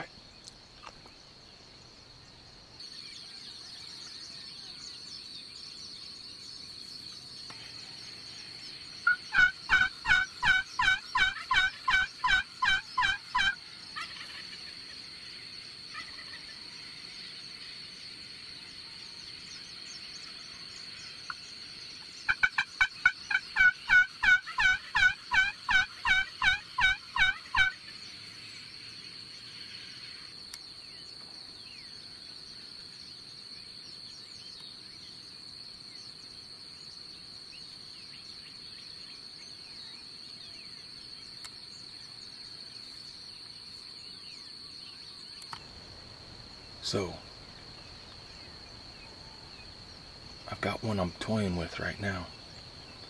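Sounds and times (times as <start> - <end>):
high insect trill: 0.0 - 53.0
turkey yelping: 9.1 - 14.5, 22.3 - 27.8.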